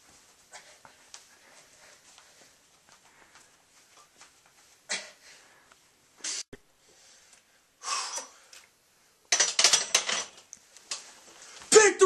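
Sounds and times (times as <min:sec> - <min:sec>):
person huffing with effort: 0:04.9 - 0:05.5.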